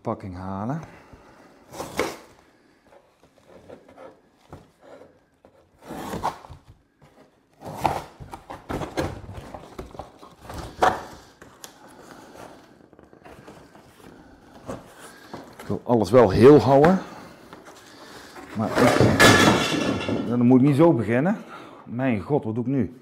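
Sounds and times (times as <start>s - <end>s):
cardboard rustling and scraping: 1.7s - 19.2s
cardboard tearing: 5.5s - 6.7s, 7.5s - 11.3s.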